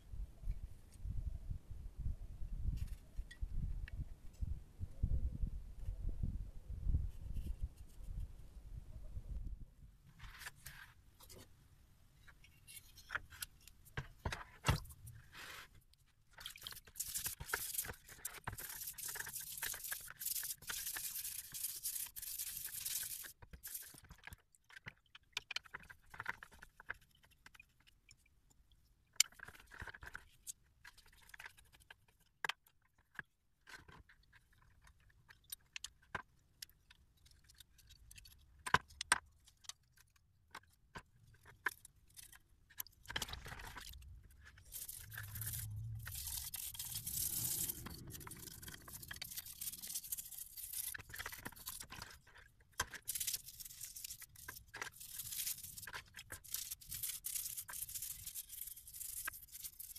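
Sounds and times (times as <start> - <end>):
toothbrush scrubbing metal parts: 16.4 - 24.3, 42.1 - 52.2, 52.8 - 59.9.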